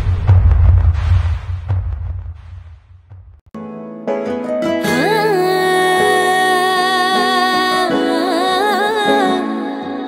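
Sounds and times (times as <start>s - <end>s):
low rumble: 0.0s - 3.4s
background music: 3.6s - 10.0s.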